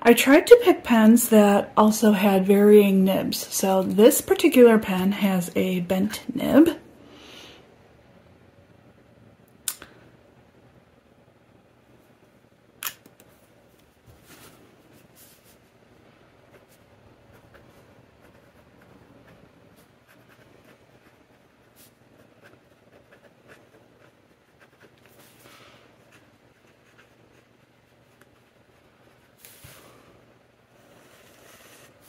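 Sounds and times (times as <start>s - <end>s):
fountain pen scratching on paper: 16.5s - 25.3s, 26.0s - 29.6s.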